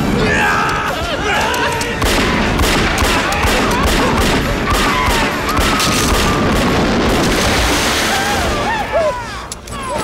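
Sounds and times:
burning flames: 0.0s - 9.7s
gunfire: 2.0s - 8.0s
dense rush of noise: 6.1s - 9.0s.

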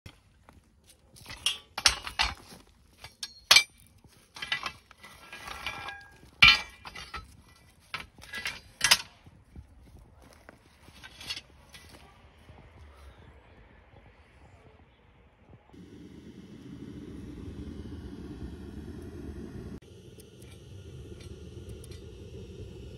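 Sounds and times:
metal scraping: 1.2s - 9.2s, 10.8s - 12.1s
scrap metal clanking: 1.2s - 9.2s, 10.8s - 12.0s.

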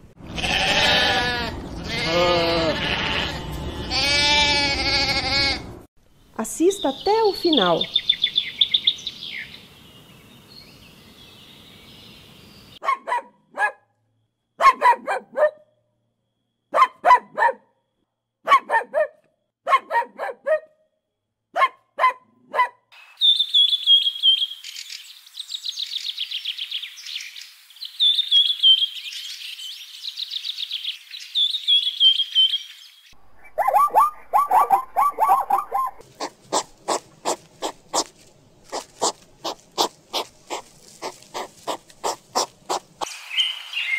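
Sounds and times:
small birds chirping: 6.1s - 12.8s, 23.0s - 43.9s
sharp bark-like calls: 12.8s - 13.9s, 14.6s - 15.7s, 16.7s - 17.7s, 18.4s - 20.8s, 21.6s - 22.9s, 33.4s - 38.1s, 38.7s - 43.1s
chattering animal call: 33.4s - 38.1s, 38.7s - 43.1s.

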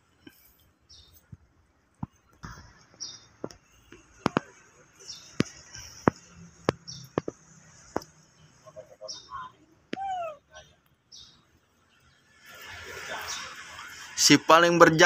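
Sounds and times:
sharp clicks and light knocks: 5.3s - 8.2s.

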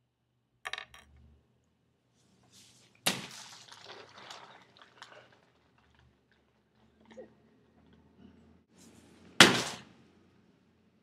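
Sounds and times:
sharp smack: 9.4s - 9.9s.

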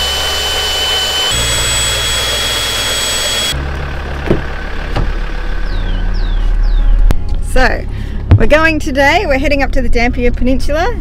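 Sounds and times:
cordless drill running: 0.0s - 3.6s
vehicle engine humming: 0.0s - 11.0s.

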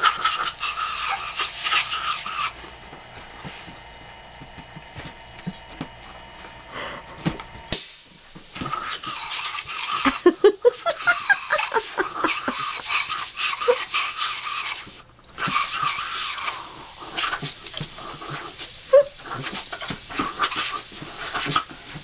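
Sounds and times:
airbrush air hissing: 0.0s - 2.6s, 7.7s - 22.0s.

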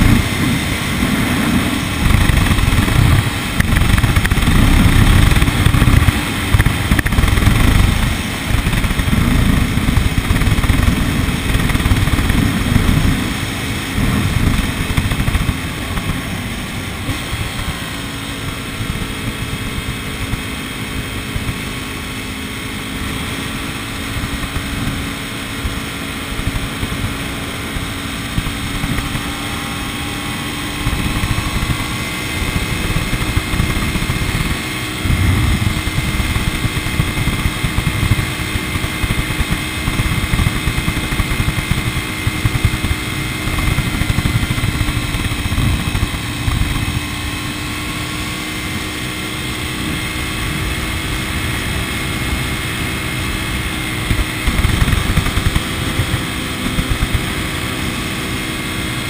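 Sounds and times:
low rumble: 0.0s - 20.4s, 24.1s - 48.0s
vehicle engine and road noise: 0.0s - 59.0s.

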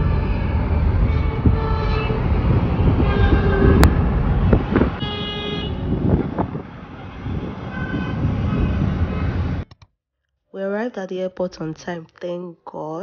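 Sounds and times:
traffic rumble: 0.0s - 9.8s
car horns honking: 1.0s - 8.8s.

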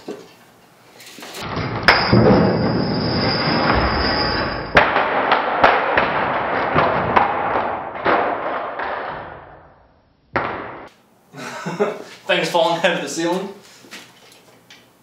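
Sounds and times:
wood blocks cracking apart: 1.1s - 9.6s
thud: 1.4s - 10.9s.

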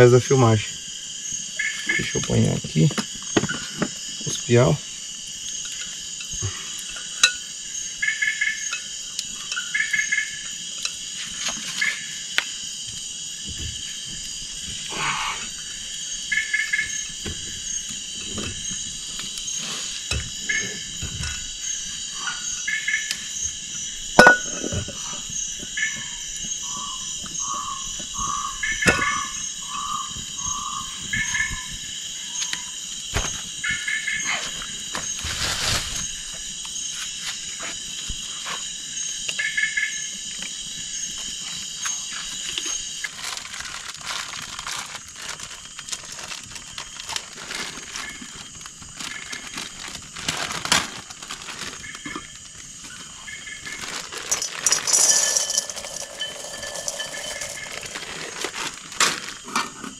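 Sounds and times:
high-pitched insect trilling: 0.0s - 59.6s
frogs calling: 0.0s - 59.9s.

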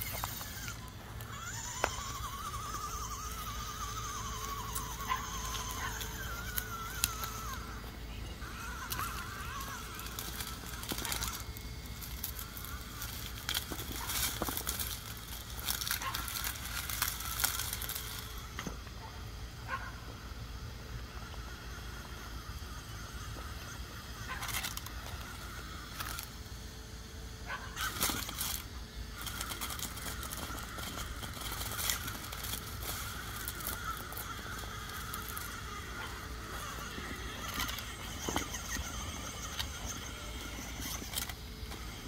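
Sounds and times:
electric motor and gears whining: 0.0s - 42.0s
toy car tyres crunching on stones: 0.0s - 42.0s.

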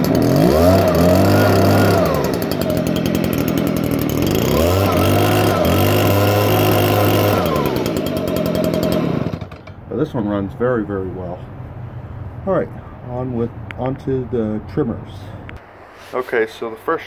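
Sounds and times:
leaf blower engine revving: 0.0s - 10.2s.

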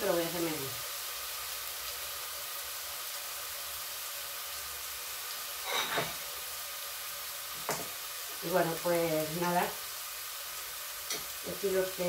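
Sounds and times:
vegetables sizzling in a pan: 0.0s - 12.0s.

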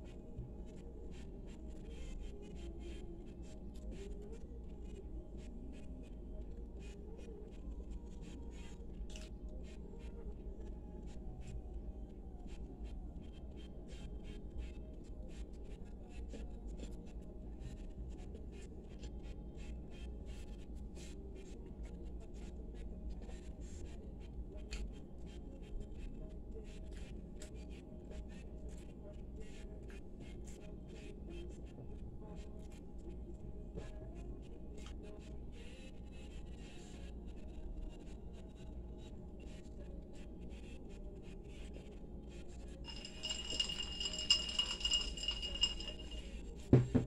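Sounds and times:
drinking glass clinking: 42.9s - 47.0s.

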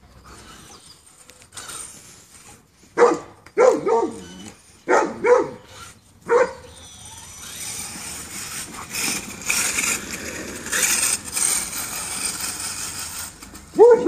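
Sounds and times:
dog barking: 3.0s - 4.2s, 4.9s - 5.6s, 6.3s - 6.7s, 13.8s - 14.0s.

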